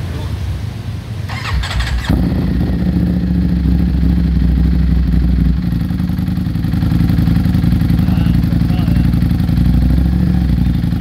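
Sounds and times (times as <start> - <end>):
motorcycle starter cranking: 1.3 - 2.3
motorcycle engine idling: 1.3 - 11.0.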